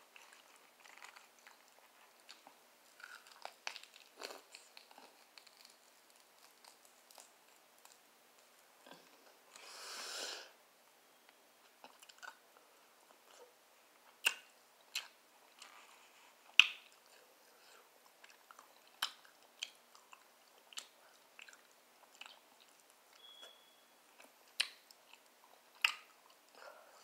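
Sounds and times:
chewing with wet mouth clicks: 0.2s - 8.0s, 14.1s - 15.9s, 16.5s - 17.2s, 18.1s - 23.6s, 24.2s - 26.6s.

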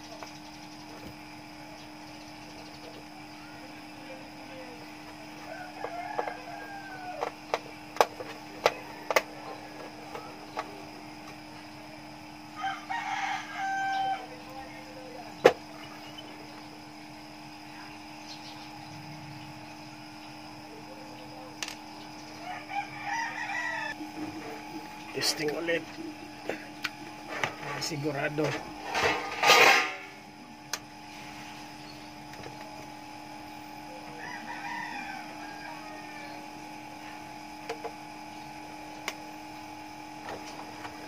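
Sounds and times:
steady electrical hum: 0.0s - 41.0s
rooster crowing: 5.4s - 7.5s, 8.7s - 9.8s, 12.5s - 14.6s, 22.3s - 24.8s, 33.9s - 36.7s.

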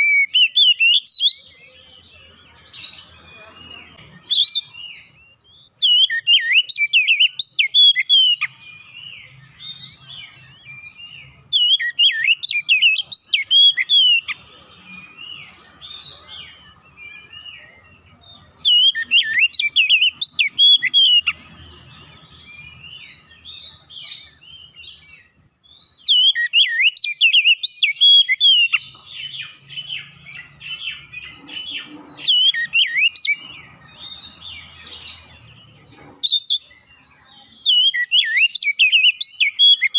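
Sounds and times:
bird singing whistled phrases: 0.0s - 1.6s, 4.2s - 16.2s, 18.6s - 21.4s, 23.0s - 31.0s, 31.7s - 33.4s, 37.6s - 39.9s.

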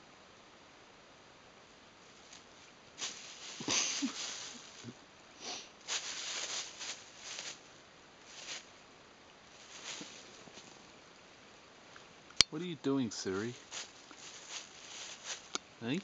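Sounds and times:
plastic bag crinkling: 3.0s - 5.0s, 5.8s - 7.7s, 13.6s - 15.6s.

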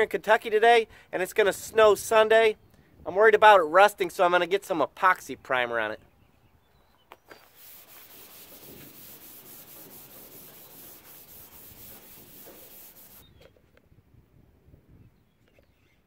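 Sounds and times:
scuff pad rubbing sheet metal: 7.4s - 13.2s.

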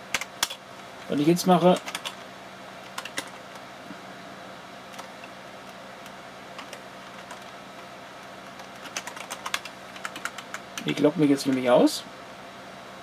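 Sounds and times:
steady low hum: 0.0s - 13.0s
keyboard keystrokes: 0.1s - 0.6s, 1.7s - 2.2s, 2.8s - 3.6s, 6.0s - 7.5s, 8.4s - 11.6s.

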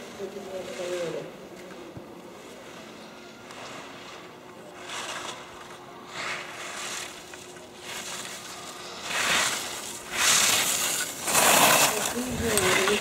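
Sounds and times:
skis scraping on hard snow: 3.6s - 13.0s.

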